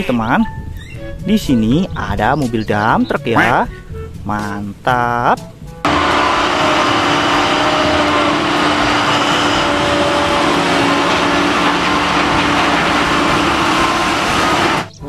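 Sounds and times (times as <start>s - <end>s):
heavy diesel engines droning: 5.9s - 15.0s.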